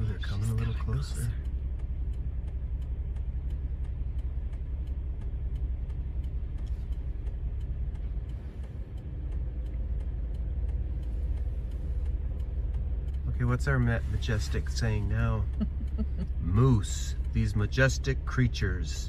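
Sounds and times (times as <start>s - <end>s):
car engine idling: 0.0s - 19.0s
faint even ticking: 0.0s - 19.0s.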